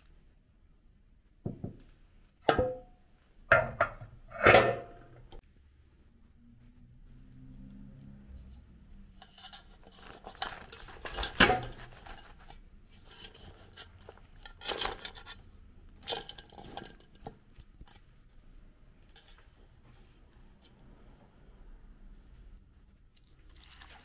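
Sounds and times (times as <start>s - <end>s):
knocking and rattling in a metal pot: 1.4s - 5.3s, 9.2s - 12.4s, 13.0s - 15.4s, 16.0s - 18.0s.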